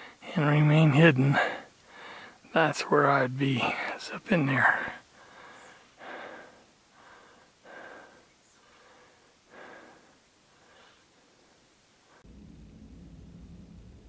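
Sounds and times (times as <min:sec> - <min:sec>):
person breathing: 0:01.4 - 0:02.4, 0:04.8 - 0:12.3.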